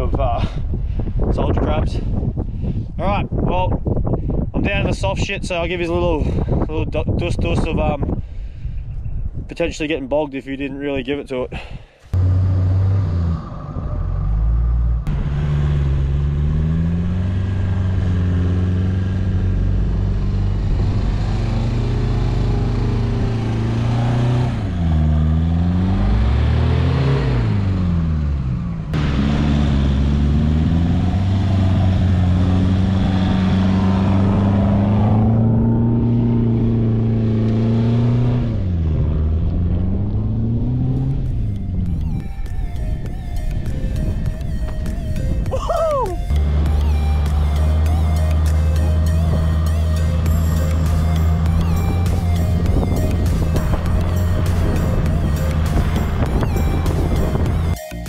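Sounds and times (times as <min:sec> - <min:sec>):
engine running hard: 0:12.1 - 0:57.8.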